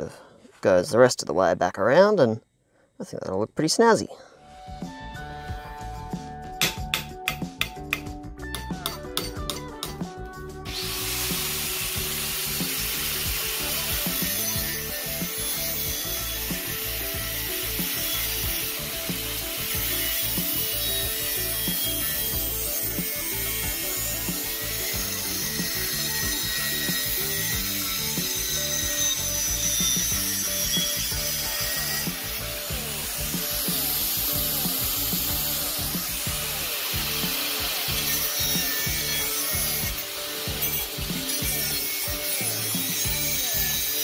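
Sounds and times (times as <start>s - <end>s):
angle grinder grinding steel: 10.6s - 44.0s.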